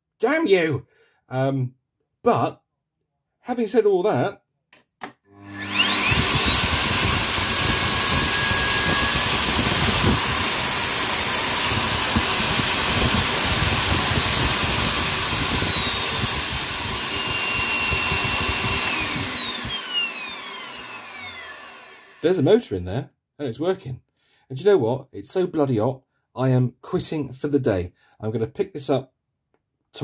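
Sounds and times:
vacuum cleaner motor whine: 0:05.3 - 0:22.3.

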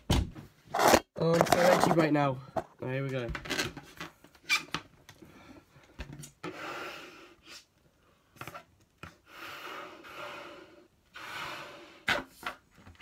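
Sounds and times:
man blowing into a balloon: 0:06.4 - 0:07.7, 0:09.2 - 0:12.3.

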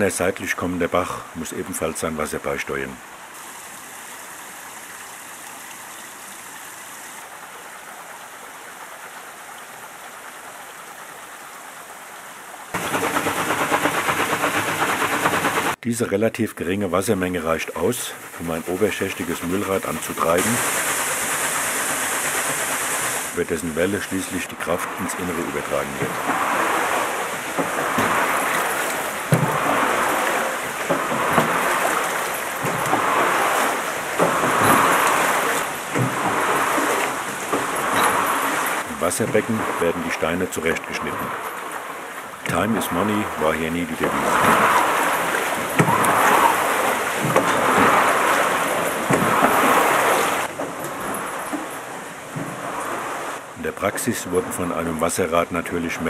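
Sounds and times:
running and dripping water: 0:00.0 - 0:15.8, 0:16.5 - 0:56.0
water splashing onto waterwheel: 0:00.0 - 0:56.0
mill machinery knocks: 0:12.8 - 0:15.8, 0:24.8 - 0:41.4, 0:43.9 - 0:53.1.

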